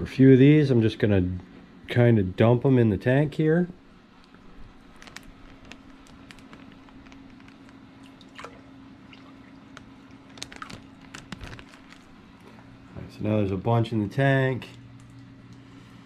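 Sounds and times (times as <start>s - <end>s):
aquarium pump hum: 0.0s - 16.0s
small drips and splashes: 4.2s - 12.7s, 14.6s - 15.6s
water dripping and trickling: 7.7s - 10.2s.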